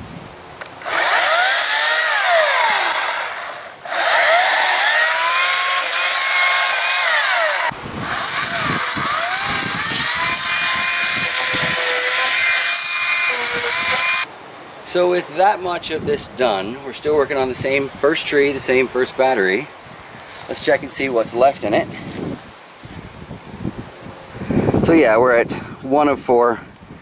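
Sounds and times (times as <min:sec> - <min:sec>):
battery chainsaw cutting branches: 0:00.6 - 0:14.3.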